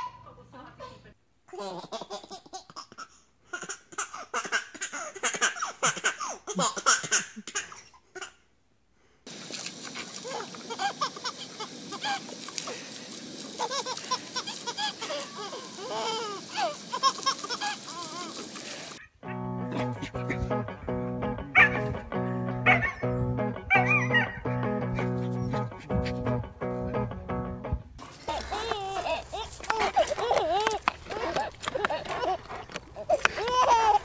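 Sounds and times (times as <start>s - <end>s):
baby laughing: 1.5s - 8.4s, 10.2s - 12.3s, 13.6s - 18.7s, 28.0s - 34.0s
garden hose spraying: 9.3s - 19.0s, 28.0s - 34.0s.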